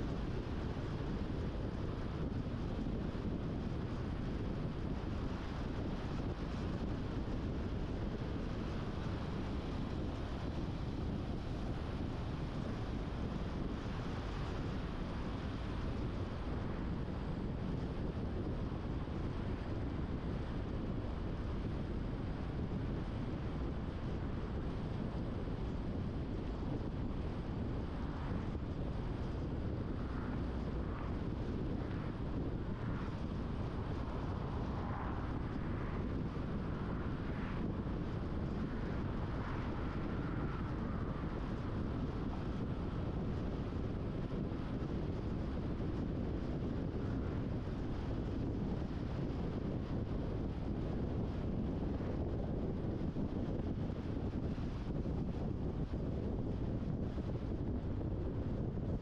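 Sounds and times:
wind on microphone: 0.0s - 59.0s.

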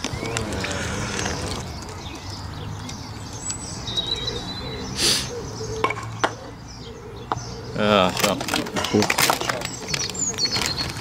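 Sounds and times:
low outdoor hum: 0.0s - 7.6s
bird chirps: 0.0s - 7.8s.

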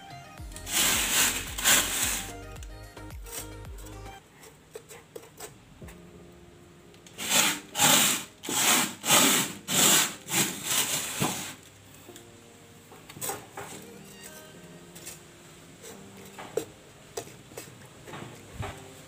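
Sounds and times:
rubbing scrapes: 0.6s - 2.4s, 7.2s - 11.6s.

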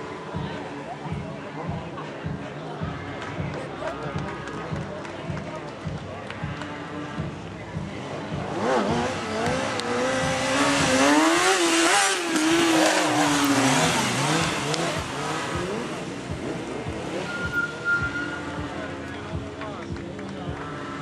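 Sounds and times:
motorcycle engine revving hard: 8.3s - 18.7s.

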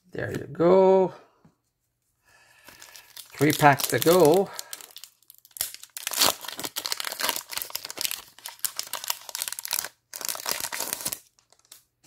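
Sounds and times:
foil wrapper tearing and crinkling: 2.6s - 11.8s.

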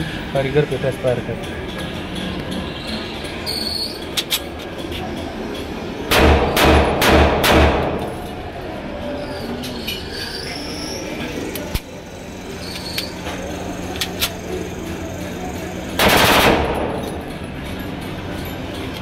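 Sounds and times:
pistol shots echoing: 6.1s - 8.2s, 16.0s - 17.2s.

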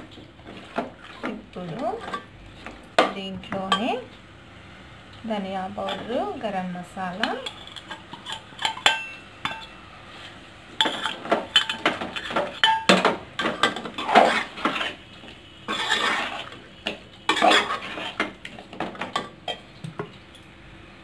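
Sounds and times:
ladle scraping metal pot: 5.8s - 6.2s, 7.2s - 15.0s, 15.7s - 19.6s.

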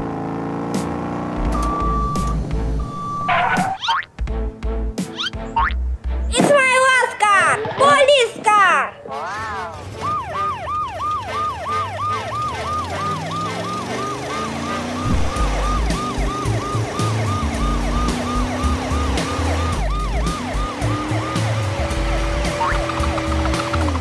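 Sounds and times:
electronic toy police siren: 2.9s - 3.9s, 10.0s - 23.2s.

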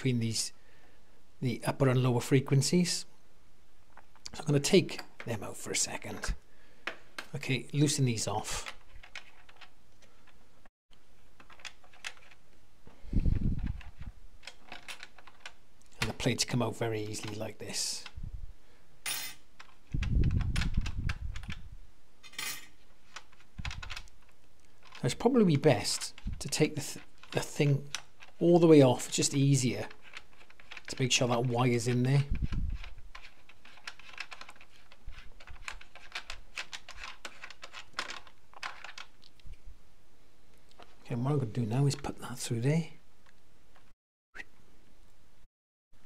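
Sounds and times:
nut turning clicks and scratches: 8.6s - 10.4s, 11.2s - 12.6s, 13.6s - 16.3s, 19.4s - 21.6s, 22.6s - 39.6s.

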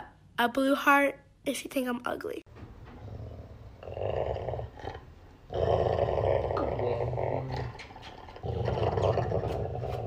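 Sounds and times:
dog growling: 3.0s - 10.0s.

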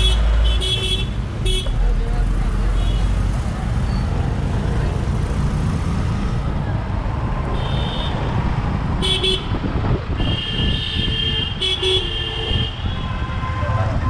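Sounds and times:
vehicle horns honking: 0.0s - 1.8s, 7.5s - 8.3s, 9.0s - 14.0s
traffic rumble: 0.0s - 14.0s.

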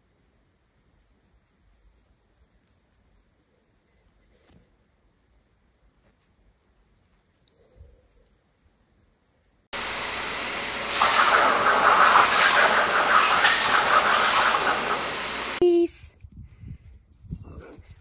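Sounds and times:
grooming dryer blowing: 9.8s - 15.6s.

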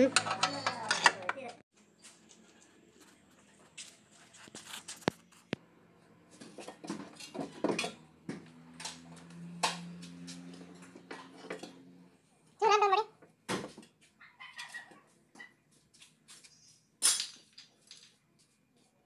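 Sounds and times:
metallic clicks and knocks: 0.0s - 1.6s.

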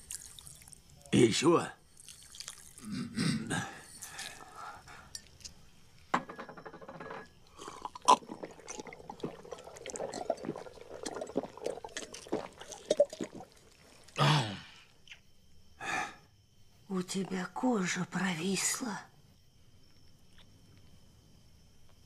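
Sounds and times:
person gulping liquid: 0.0s - 0.8s, 2.0s - 4.5s, 7.5s - 14.8s.

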